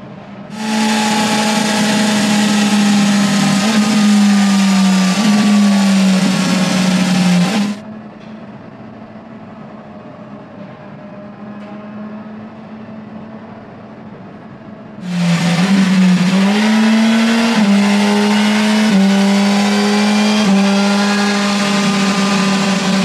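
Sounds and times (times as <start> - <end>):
motorcycle engine at high revs: 0.5 - 7.8, 15.0 - 23.0
tyre whirring on rollers: 0.5 - 7.8.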